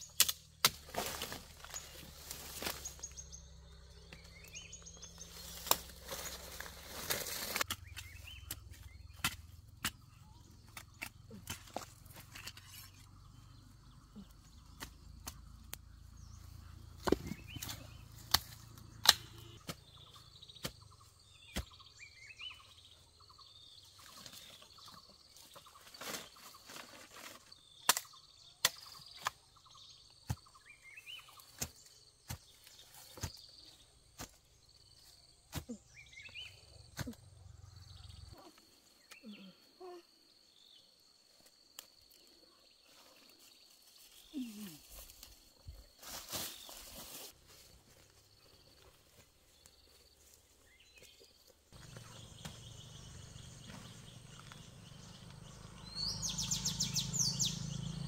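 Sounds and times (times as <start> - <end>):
sugarcane knocks and cracks: 0.0 - 3.0, 5.4 - 12.9, 16.9 - 19.9, 25.8 - 29.5, 31.4 - 33.5, 34.1 - 34.5
birds chirping: 0.0 - 26.8, 27.4 - 58.0.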